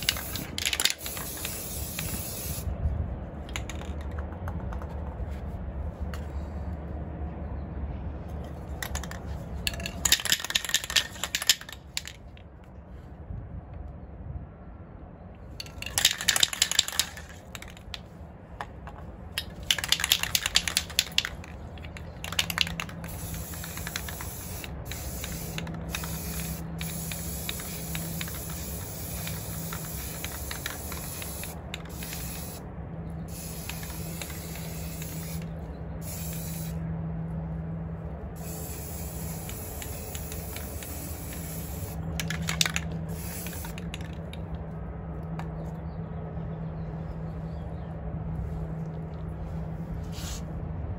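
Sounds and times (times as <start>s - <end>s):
spray can rattling: 0.0s - 2.7s, 3.4s - 5.1s, 8.6s - 12.3s, 15.6s - 32.6s, 33.3s - 36.8s, 38.4s - 44.5s
spray paint hissing: 0.0s - 2.8s, 8.8s - 12.2s, 15.6s - 18.0s, 19.4s - 36.8s, 38.4s - 44.5s.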